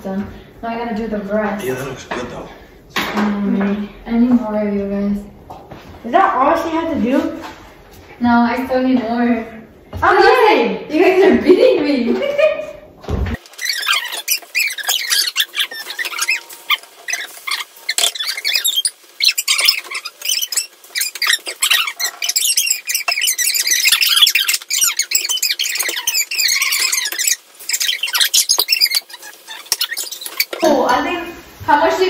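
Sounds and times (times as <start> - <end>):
high squeaky voices chattering: 13.4 - 31.3.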